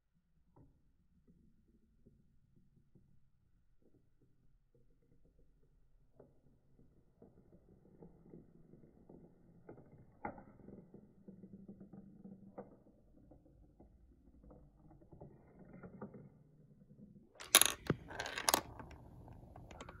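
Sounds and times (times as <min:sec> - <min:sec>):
marbles rolling on plastic track: 0:06.5 - 0:20.0
plastic clacks and clatter: 0:17.4 - 0:20.0.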